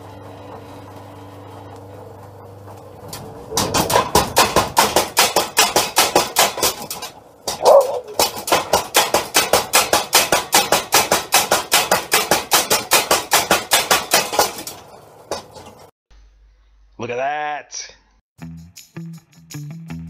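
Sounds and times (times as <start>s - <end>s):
power hammer pounding steel: 3.3s - 15.9s.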